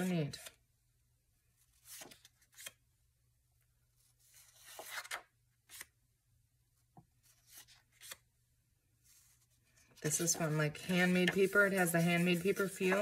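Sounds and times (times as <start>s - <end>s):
paper rustling: 1.6s - 2.8s, 9.0s - 13.0s.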